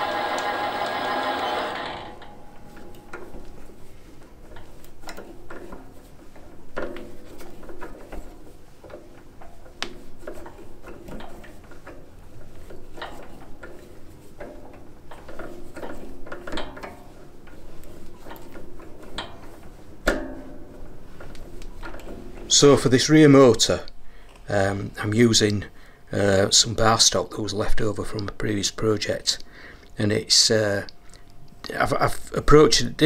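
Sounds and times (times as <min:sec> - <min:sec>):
metal parts and hand tools clicking: 0:01.8 - 0:22.7.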